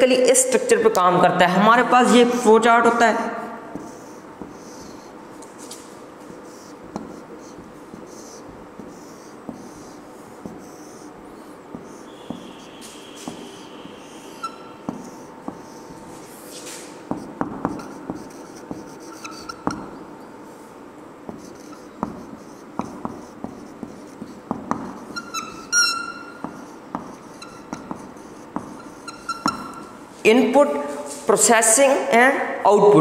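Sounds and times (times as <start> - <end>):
marker scratching on whiteboard: 1.9 - 31.9
light marker taps: 3.7 - 16.0, 17.0 - 20.0, 21.2 - 29.8
marker tip squeaks: 3.8 - 5.9, 6.5 - 15.9, 16.8 - 19.9, 21.3 - 30.0.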